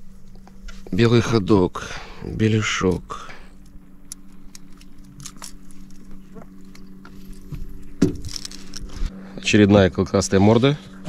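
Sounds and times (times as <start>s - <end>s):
outboard motor humming: 0.0s - 11.0s
gear clicking and jangling: 4.6s - 6.2s, 8.2s - 9.0s.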